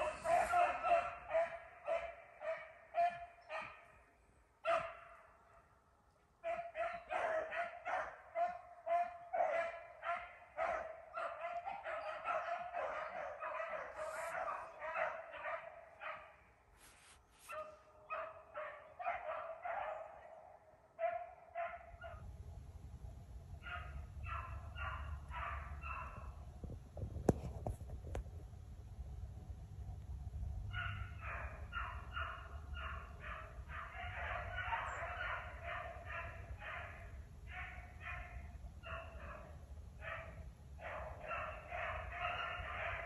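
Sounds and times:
dogs baying and barking: 0:00.0 - 0:04.0, 0:04.6 - 0:05.2, 0:06.4 - 0:16.4, 0:17.4 - 0:22.2, 0:23.6 - 0:26.4, 0:30.7 - 0:43.0.

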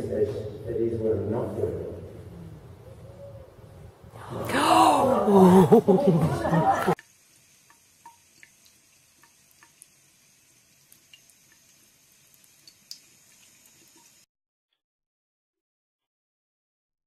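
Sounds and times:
faucet trickling into sink: 0:07.0 - 0:14.2
light dripping ticks: 0:07.0 - 0:14.2.

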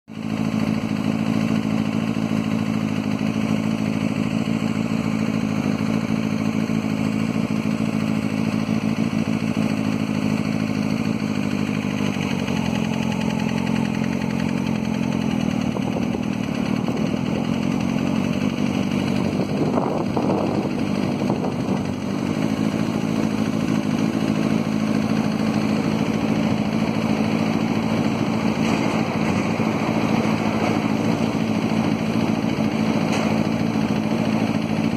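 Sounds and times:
locomotive engine drone: 0:00.1 - 0:34.9.

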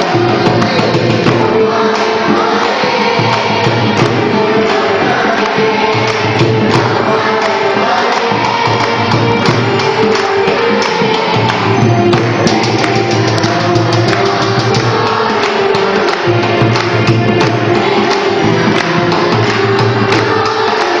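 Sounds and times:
group singing: 0:00.0 - 0:21.0
percussion beats: 0:00.0 - 0:21.0
rhythmic hand-clapping: 0:00.0 - 0:21.0.

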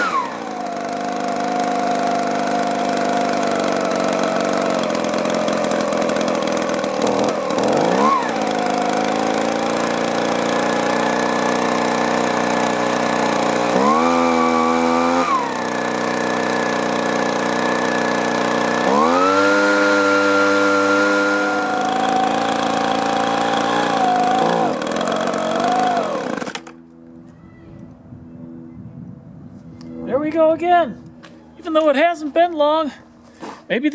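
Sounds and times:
leaf blower engine revving: 0:00.0 - 0:26.9.

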